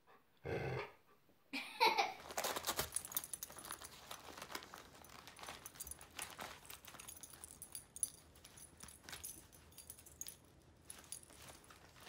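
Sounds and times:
dog grumbling: 0.4 - 1.0
wrapping paper crinkling: 2.2 - 12.0.

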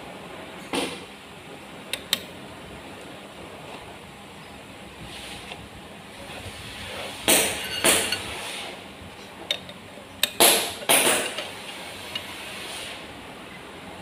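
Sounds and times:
metal tools knocking on metal: 7.3 - 8.3, 9.5 - 12.3.

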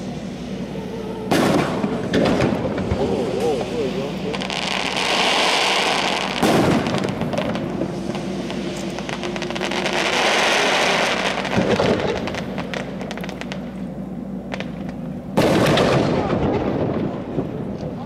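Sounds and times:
fireworks crackling: 0.0 - 18.0
loud firework boom: 1.3 - 3.7, 4.3 - 13.7, 15.4 - 18.0.

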